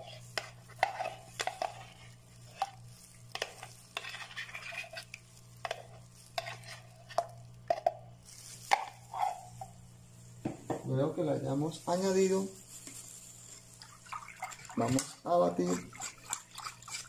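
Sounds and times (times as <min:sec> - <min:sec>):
spatula scraping a container: 0:00.0 - 0:07.3, 0:14.4 - 0:17.0.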